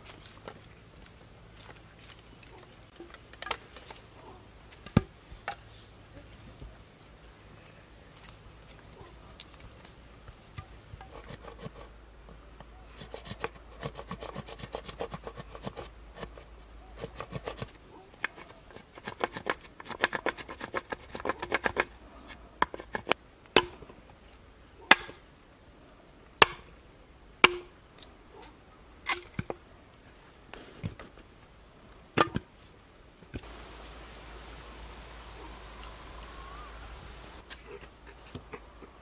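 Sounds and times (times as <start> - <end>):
blade chopping bamboo: 27.4 - 27.7.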